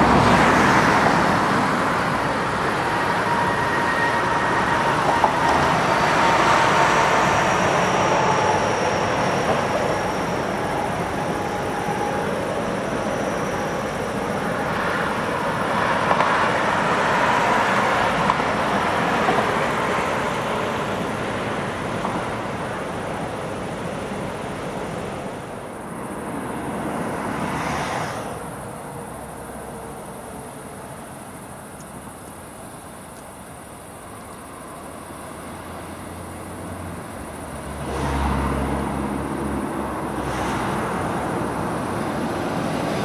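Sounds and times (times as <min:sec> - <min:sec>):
train wheels rumbling and clattering: 0:00.0 - 0:26.1
faint high whine: 0:01.8 - 0:16.7.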